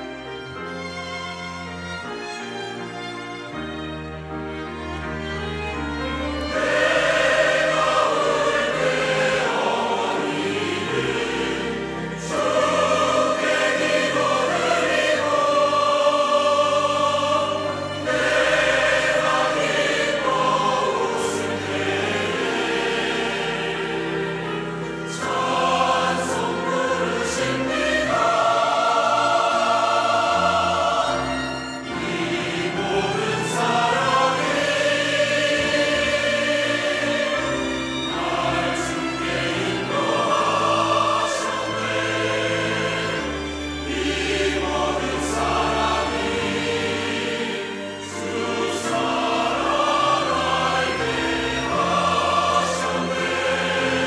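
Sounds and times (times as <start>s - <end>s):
choir singing a hymn: 0.0s - 54.0s
orchestral accompaniment: 0.0s - 54.0s.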